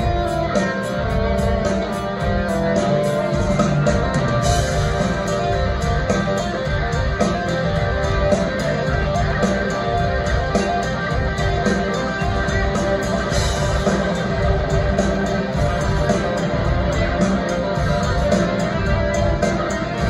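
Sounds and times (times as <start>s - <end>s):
bass guitar: 0.0s - 20.0s
drums: 0.0s - 20.0s
electric guitars: 0.0s - 20.0s
keyboard: 0.0s - 20.0s.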